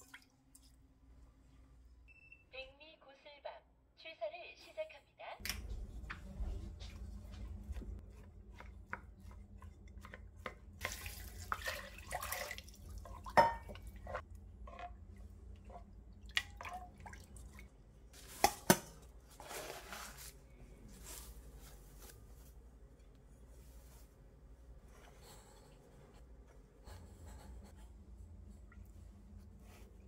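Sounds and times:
water sloshing and dripping: 0.0s - 1.0s, 9.6s - 18.6s.

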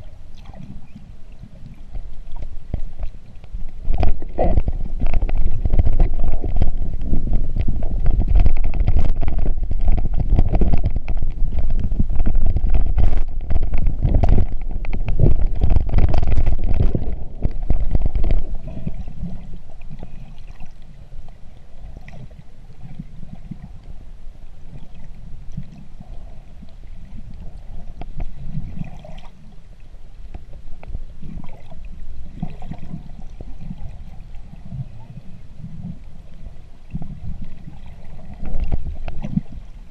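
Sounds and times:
muffled underwater rumble: 0.0s - 39.9s
crackling clicks: 0.4s - 21.7s.

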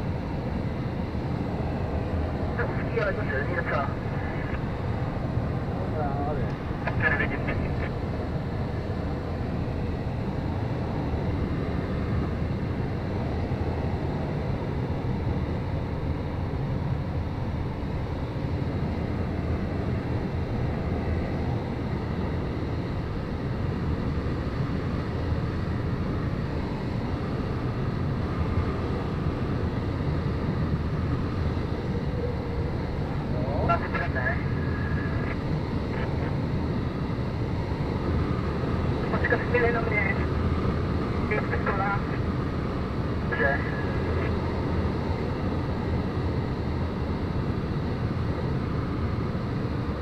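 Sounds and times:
airflow rushing over glider: 16.8s - 50.0s.

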